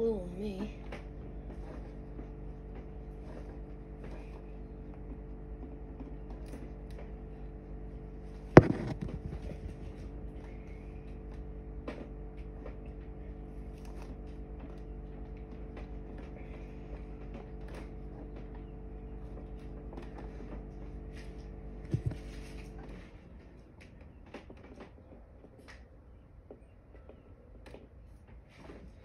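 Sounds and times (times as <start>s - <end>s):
steady mechanical hum: 0.0s - 29.0s
sharp knock with rattle: 8.6s - 9.9s.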